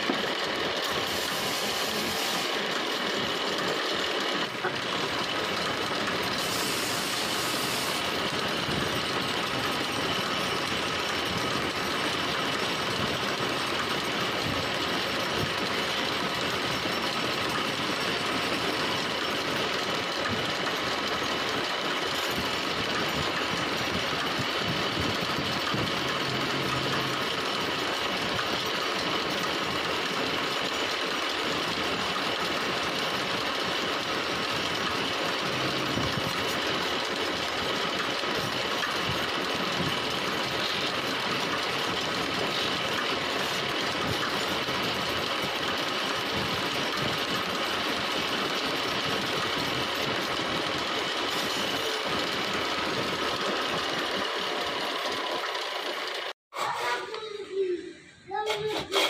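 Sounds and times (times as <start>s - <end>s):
wood lathe rattling: 0.0s - 56.4s
chisel cutting spinning wood: 0.0s - 57.2s
sandpaper on spinning wood: 1.0s - 2.6s.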